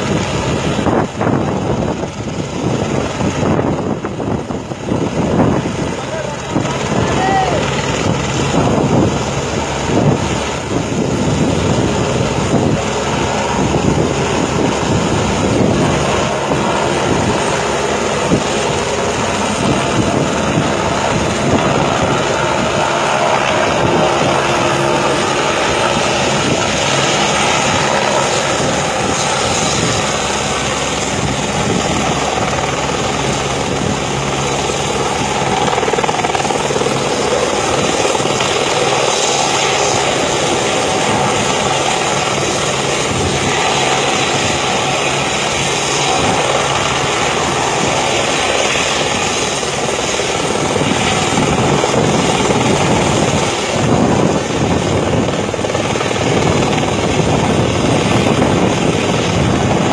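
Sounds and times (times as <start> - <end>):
helicopter rotor and engine noise: 0.0 - 59.9.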